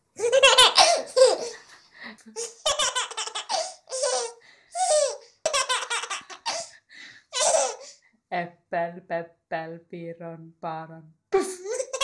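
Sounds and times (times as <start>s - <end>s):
baby laughing: 0.2s - 1.7s, 2.4s - 6.7s, 7.3s - 8.0s, 11.4s - 12.0s.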